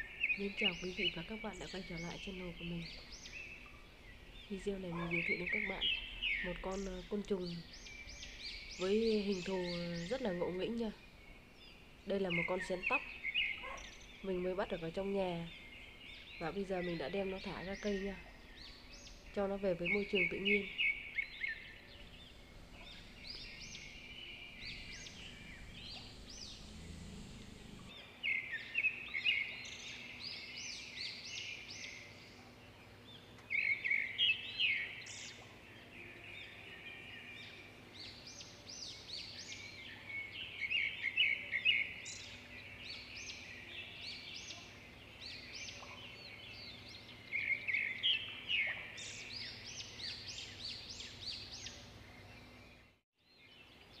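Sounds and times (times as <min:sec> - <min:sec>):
birds chirping and singing: 0:00.0 - 0:54.0
low rumble: 0:18.2 - 0:28.0.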